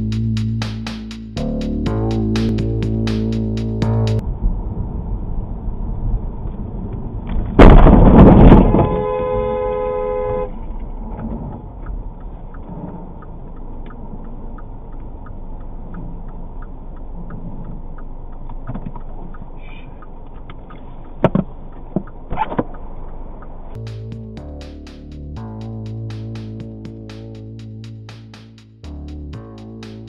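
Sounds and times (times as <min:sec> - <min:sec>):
low rumble of stopped car: 0:00.0 - 0:30.0
car horn blaring: 0:08.5 - 0:10.6
faint regular ticking: 0:11.8 - 0:23.8.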